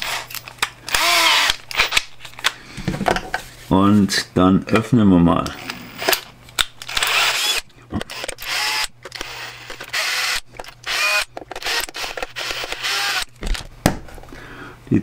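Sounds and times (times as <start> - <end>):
cordless drill motor whine: 1.0 - 1.5, 6.9 - 13.3.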